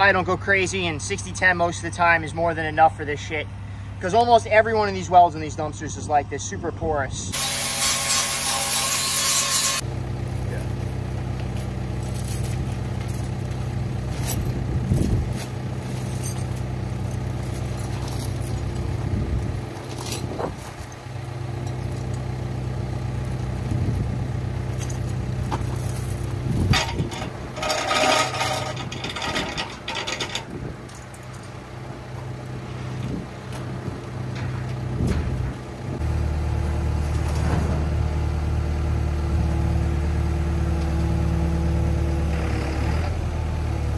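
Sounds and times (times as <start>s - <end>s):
excavator diesel engine idling: 9.8s - 15.8s
metal chain clinking and rattling: 10.2s - 22.3s, 23.2s - 31.6s, 32.9s - 33.9s.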